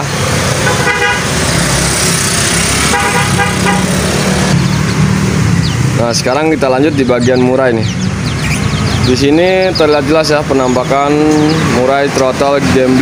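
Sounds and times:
road traffic rumble: 0.0 - 13.0
vehicle horn toots: 0.6 - 1.4, 2.8 - 4.0.

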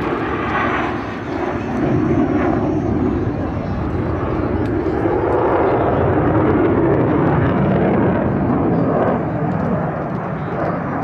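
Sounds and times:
jet engine roar: 0.0 - 11.0.

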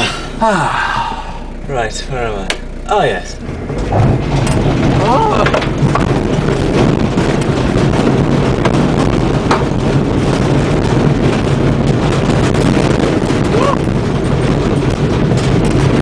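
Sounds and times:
van body rattling: 0.0 - 16.0
van engine and tyres rumbling: 0.0 - 16.0
sharp knocks of van jolting: 3.4 - 16.0.

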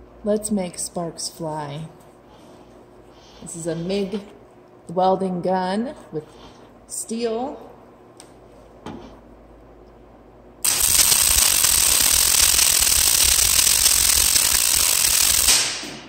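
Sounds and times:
welding arc running: 10.6 - 16.0.

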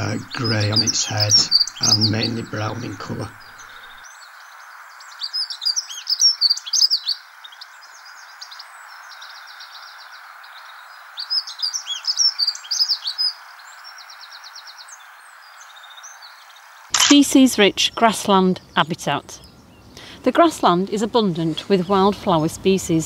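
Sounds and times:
bird warbling song: 0.0 - 16.9
background hiss: 0.0 - 23.0
rapidly repeated bird notes: 0.0 - 23.0.

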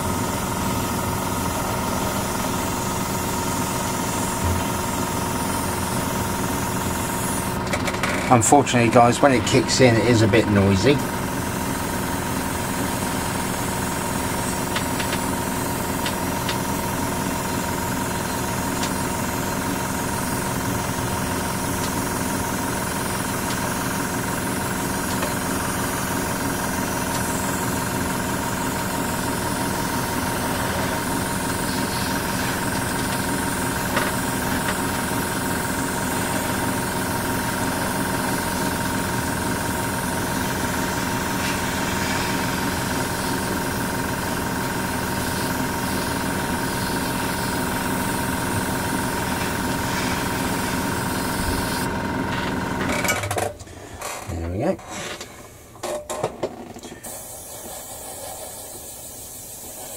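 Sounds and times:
compressor humming: 0.0 - 59.9.

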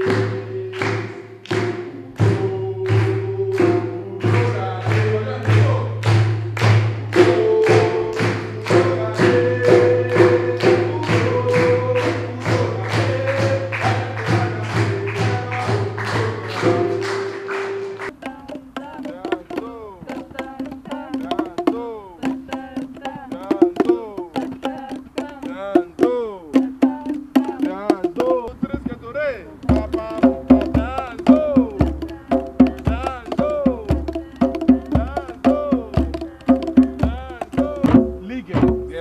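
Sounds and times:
djembe hand drums: 0.0 - 39.0
music with steady drum beat: 0.0 - 39.0
voices singing: 0.0 - 39.0.

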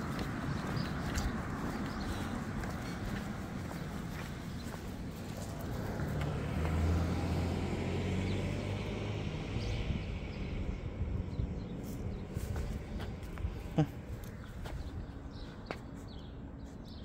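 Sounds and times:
car driving past: 5.4 - 11.0.

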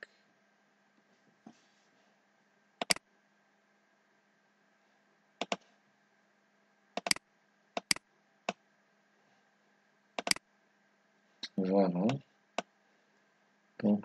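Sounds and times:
mouse and keyboard clicks: 2.8 - 3.0, 5.4 - 5.6, 7.0 - 7.2, 7.8 - 8.6, 10.2 - 10.4.

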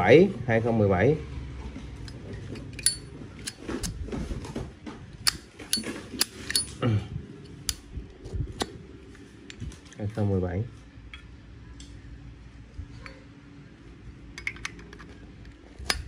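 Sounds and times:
metal lighter clicks and clinks: 2.8 - 3.6, 5.2 - 6.8.

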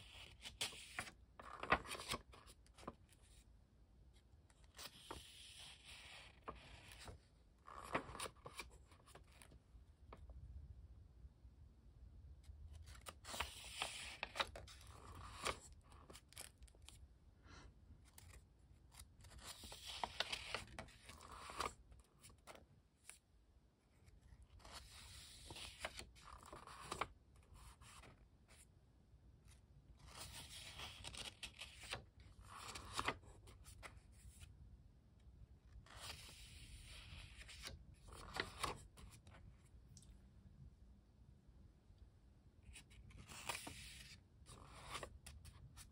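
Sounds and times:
sketchbook pages turning: 0.0 - 3.4, 4.3 - 10.3, 12.4 - 17.0, 18.0 - 23.2, 24.0 - 28.7, 29.5 - 34.5, 35.7 - 39.8, 42.6 - 45.9.

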